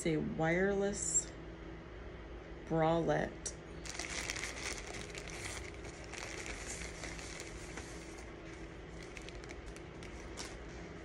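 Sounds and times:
plastic packaging crinkling: 3.8 - 10.8.

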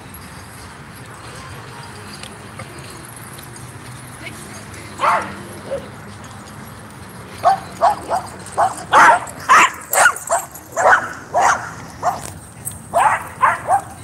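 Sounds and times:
dog barking: 5.0 - 5.8, 7.4 - 12.3, 12.9 - 14.0.

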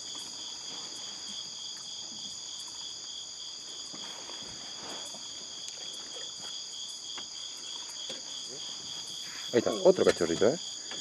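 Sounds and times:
night insects trilling: 0.0 - 11.0.

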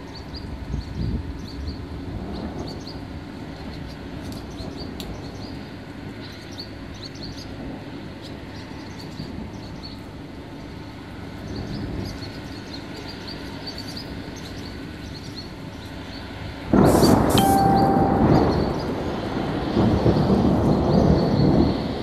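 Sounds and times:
wind and rain: 0.0 - 22.0
small birds chirping: 11.4 - 16.4.

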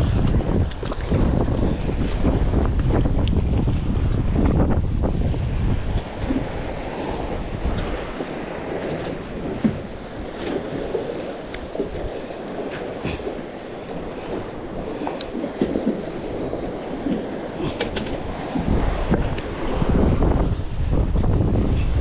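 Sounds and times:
wind buffeting microphone: 0.0 - 22.0
small waves lapping: 5.8 - 20.0.

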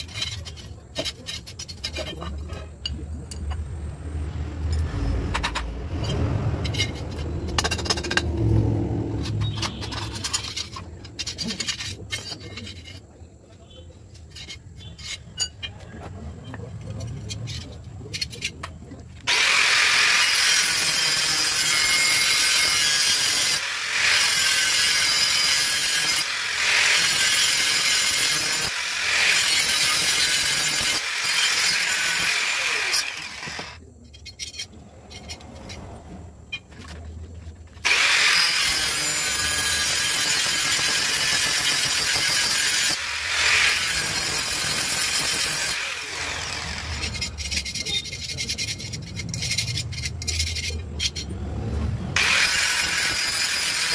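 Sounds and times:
angle grinder grinding steel: 4.7 - 13.0, 19.3 - 33.8, 37.8 - 53.9.

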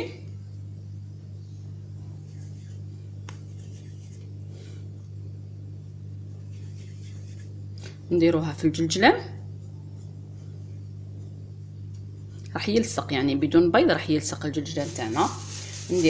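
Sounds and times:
low electrical hum: 0.0 - 16.0
hands rolling dough rustles: 2.2 - 5.2, 6.2 - 8.0, 14.3 - 16.0.

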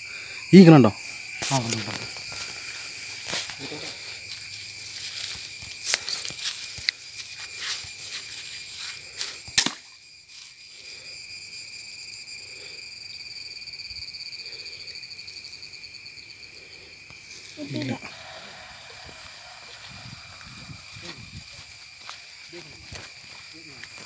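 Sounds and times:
insects trilling: 0.0 - 24.0
rustling through dry brush: 1.4 - 9.4.

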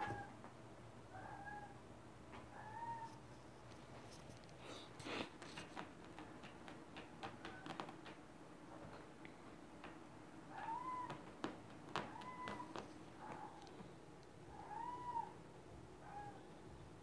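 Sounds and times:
kittens mewing: 10.5 - 11.2, 12.0 - 13.7, 14.5 - 15.4.

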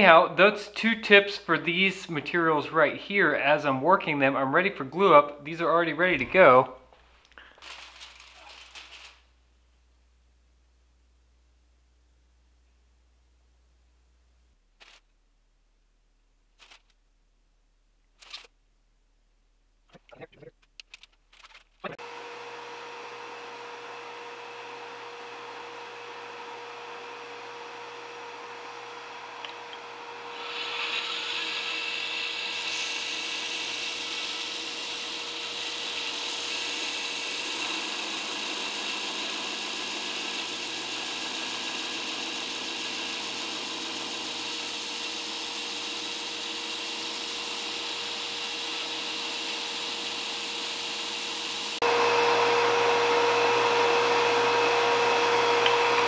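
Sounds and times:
wood grinding hiss: 6.0 - 9.3, 28.8 - 56.0
belt grinder humming: 22.0 - 56.0.

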